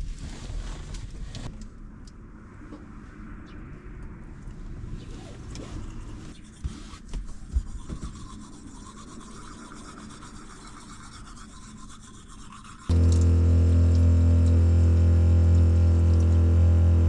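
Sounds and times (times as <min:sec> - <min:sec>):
toothbrushes scrubbing: 0:05.8 - 0:13.3.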